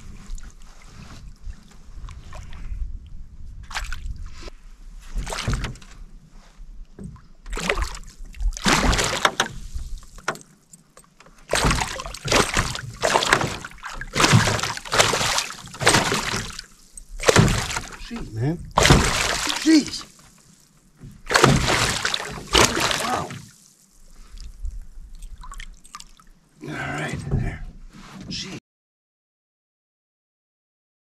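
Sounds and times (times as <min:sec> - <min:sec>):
water splashing around canoe: 0:03.6 - 0:06.1, 0:07.0 - 0:26.3.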